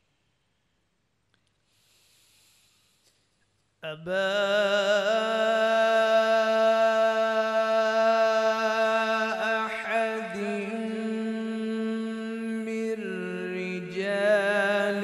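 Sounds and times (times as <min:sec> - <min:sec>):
man reciting melodically: 0:03.8 - 0:15.0.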